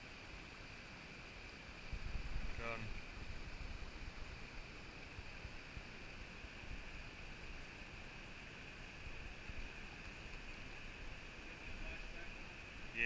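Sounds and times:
river water rushing: 0:00.0 - 0:13.0
wind rumble on microphone: 0:01.8 - 0:07.0.

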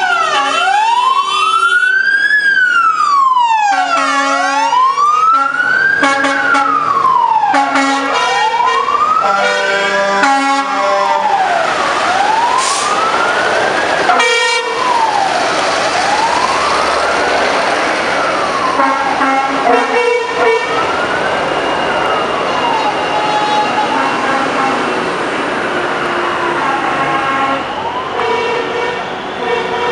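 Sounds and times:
fire engine siren wailing: 0:00.0 - 0:29.9
truck engines passing: 0:00.0 - 0:29.9
truck horn blasts: 0:00.2 - 0:01.4, 0:03.7 - 0:06.8, 0:07.5 - 0:11.4, 0:14.1 - 0:14.8, 0:18.8 - 0:20.7, 0:23.2 - 0:25.0, 0:26.2 - 0:29.9.

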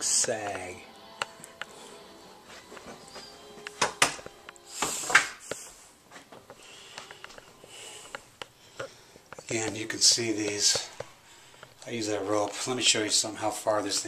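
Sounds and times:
sharp knocks and clicks: 0:03.8 - 0:04.3.

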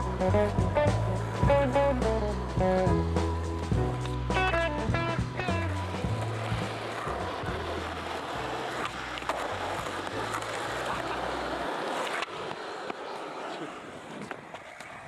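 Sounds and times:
music bass line: 0:00.0 - 0:08.2
skateboard wheels rolling on asphalt: 0:00.0 - 0:15.0.

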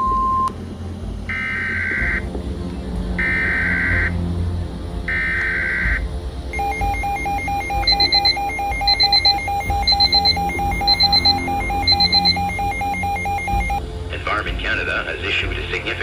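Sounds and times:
weather radio alarm beeping: 0:06.6 - 0:13.8.

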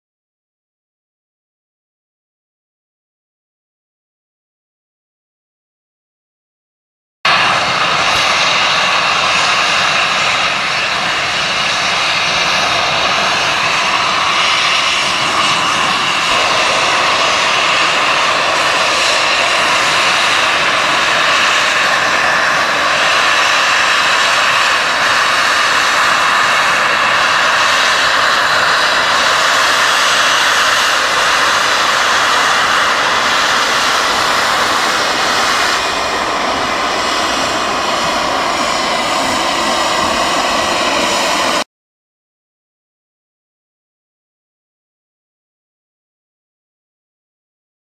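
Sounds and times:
roar of escaping steam: 0:07.3 - 0:41.6
steam locomotive moving slowly: 0:07.4 - 0:41.6.

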